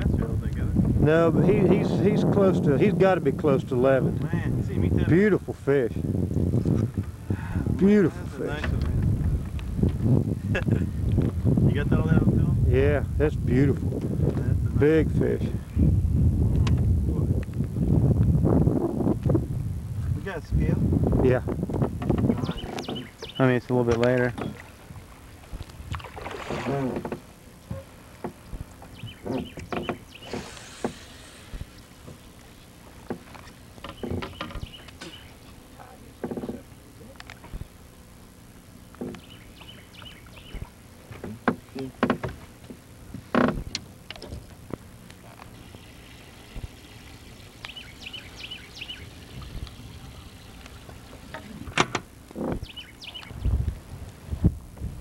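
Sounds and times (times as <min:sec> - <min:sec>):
low wind rumble: 0:00.0 - 0:55.0
knocks and clunks in boat: 0:08.5 - 0:11.4, 0:21.5 - 0:24.9, 0:25.5 - 0:37.8, 0:38.9 - 0:44.8, 0:50.8 - 0:53.2
bird chirping: 0:22.4 - 0:23.6, 0:28.8 - 0:30.4, 0:33.4 - 0:35.5, 0:39.1 - 0:40.7, 0:46.8 - 0:50.6, 0:52.6 - 0:53.6
short hiss: 0:30.2 - 0:31.8.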